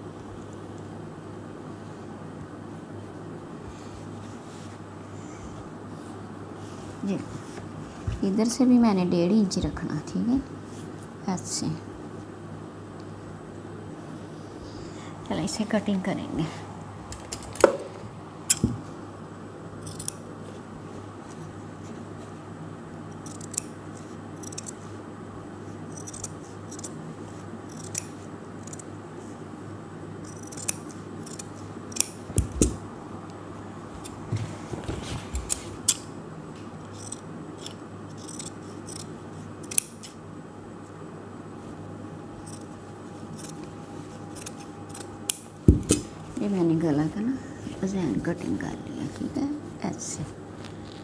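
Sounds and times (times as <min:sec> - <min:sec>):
scissors cutting fabric: 0:19.8 - 0:20.2, 0:23.2 - 0:24.8, 0:25.9 - 0:27.0, 0:27.7 - 0:28.9, 0:30.2 - 0:32.8, 0:36.9 - 0:40.2, 0:42.4 - 0:46.0.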